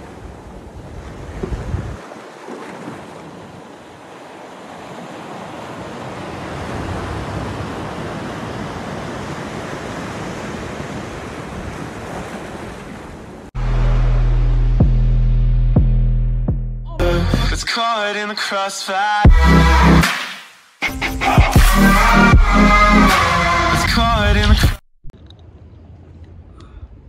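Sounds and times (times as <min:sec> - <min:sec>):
wind buffeting microphone: 0:00.0 - 0:02.2
intro music with throbbing beat: 0:13.6 - 0:17.6, 0:19.3 - 0:23.8.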